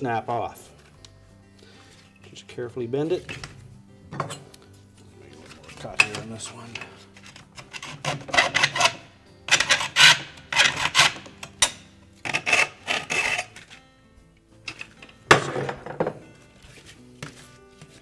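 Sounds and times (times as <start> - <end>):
hacksaw cutting: 7.2 - 13.8.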